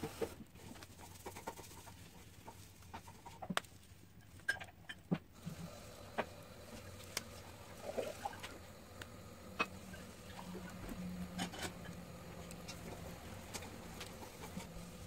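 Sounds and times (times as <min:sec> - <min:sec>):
wood fire crackling: 0:05.3 - 0:15.0
faint low hum: 0:05.4 - 0:15.0.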